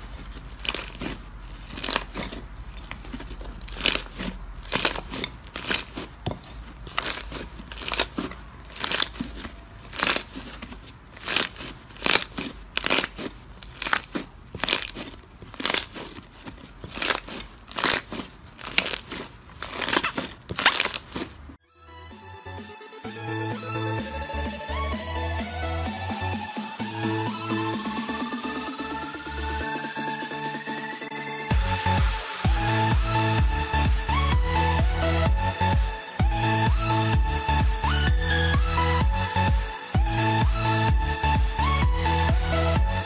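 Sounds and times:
slime squishing by hand: 0.0s - 21.6s.

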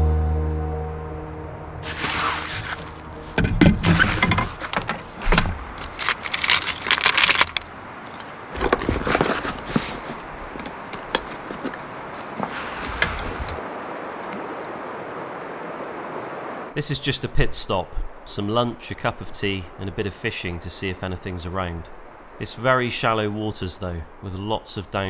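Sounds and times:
rod sliding out of fabric sleeve: 1.8s - 3.2s
metal lures clinking in plastic box: 5.8s - 8.7s.

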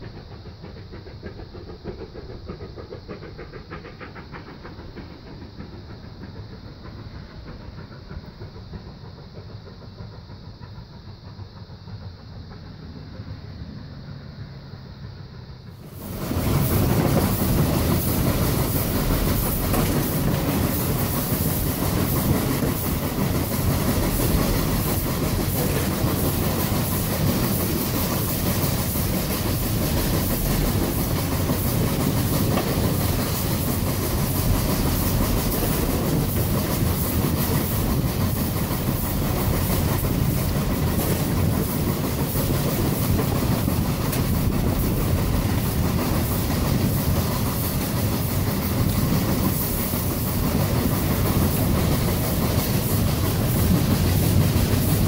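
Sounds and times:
steam locomotive chuffing: 0.0s - 55.0s
wheels clattering on rail: 15.7s - 55.0s.

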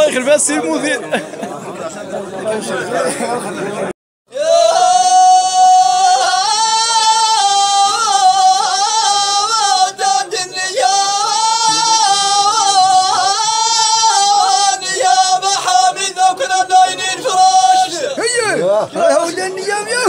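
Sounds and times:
man chanting unaccompanied: 4.3s - 20.0s.

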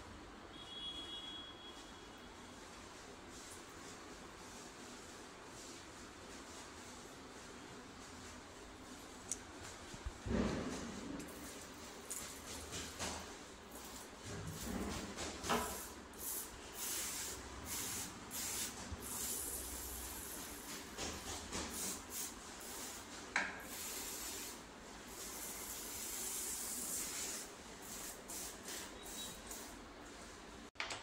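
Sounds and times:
liquid spray hissing: 15.7s - 20.7s, 21.7s - 29.7s.

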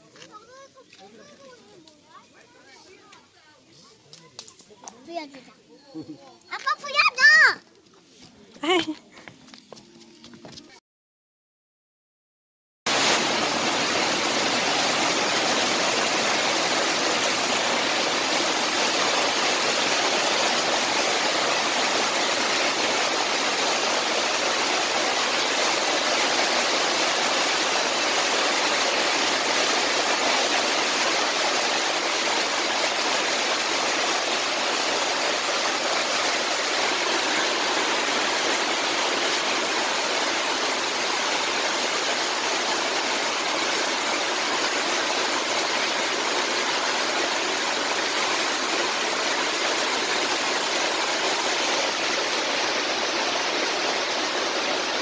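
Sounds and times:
heavy rain splashing: 12.9s - 55.0s.

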